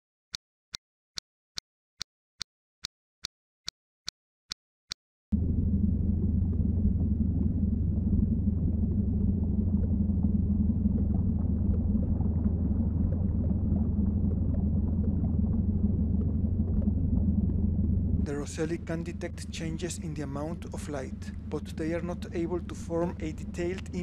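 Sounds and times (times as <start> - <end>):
low rumbling drone: 5.3 - 24.0.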